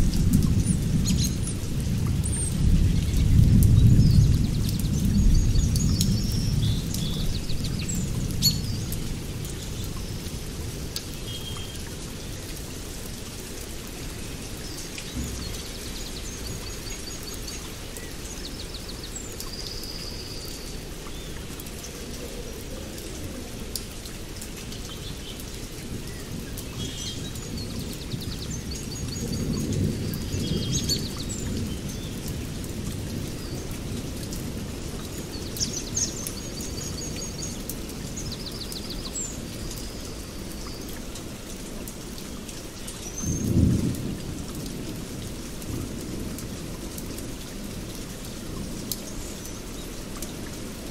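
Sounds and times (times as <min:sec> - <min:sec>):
low rumble of thunder: 0:00.0 - 0:11.4, 0:15.0 - 0:18.0, 0:25.0 - 0:37.5, 0:43.1 - 0:49.0
steady rain: 0:00.0 - 0:50.9.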